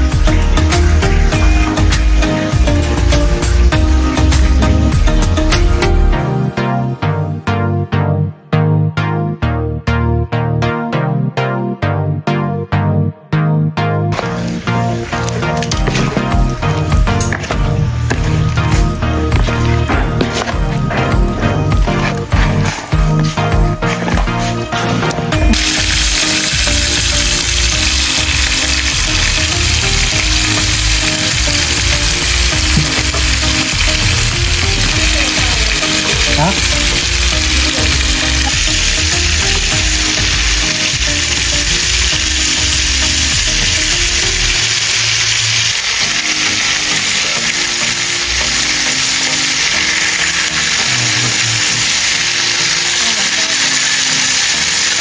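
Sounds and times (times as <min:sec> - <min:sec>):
chicken sizzling in oil: 0:25.4 - 0:55.0.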